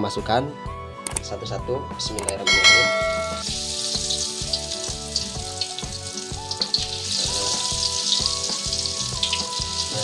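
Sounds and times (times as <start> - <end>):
background music with beat: 0.6 - 10.0
frying in hot oil with pops: 3.4 - 10.0.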